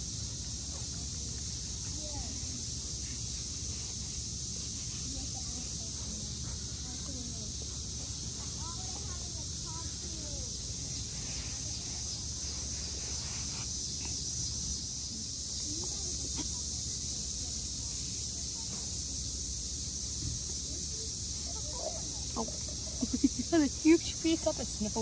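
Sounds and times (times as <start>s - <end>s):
high outdoor hiss: 0.0s - 25.0s
puppy digging and snuffling in sand: 0.1s - 19.3s.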